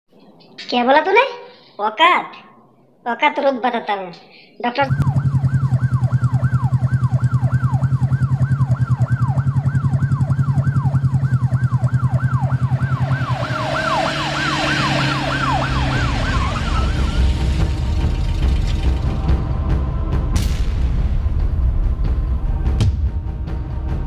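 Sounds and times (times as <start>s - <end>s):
police siren yelping: 4.9s - 19.4s
low pulsing drone: 4.9s - 24.0s.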